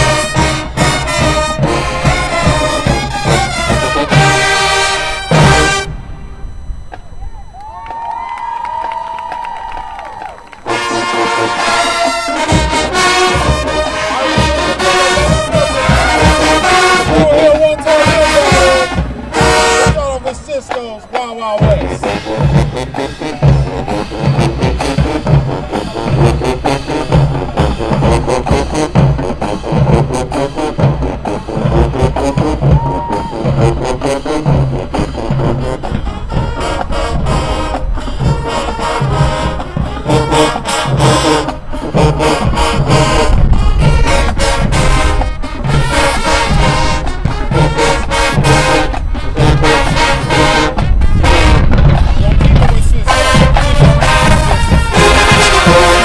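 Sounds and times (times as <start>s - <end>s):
brass horns: 0.0s - 7.2s, 9.0s - 56.0s
marching band playing: 0.0s - 56.0s
steady bass beat: 10.4s - 56.0s.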